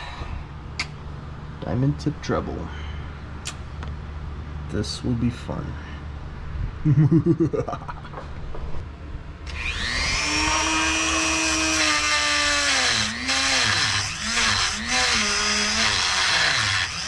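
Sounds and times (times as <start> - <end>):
rotary tool grinding metal: 9.5 - 17.0.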